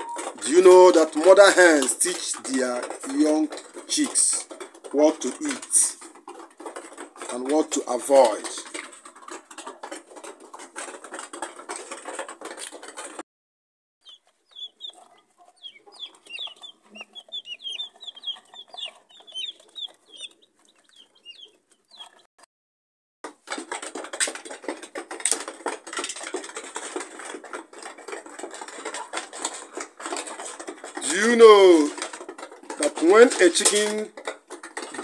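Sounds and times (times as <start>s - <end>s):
hen clucking: 0.0s - 7.4s, 14.0s - 22.3s
chicks peeping: 0.0s - 13.1s, 14.0s - 22.3s, 26.2s - 35.0s
scratchy clattering noise: 0.0s - 13.2s, 14.2s - 22.3s, 23.3s - 35.0s.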